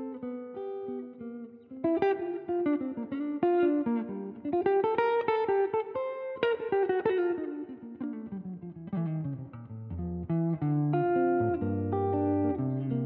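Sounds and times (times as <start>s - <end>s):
plucked string melody: 1.9s - 13.0s.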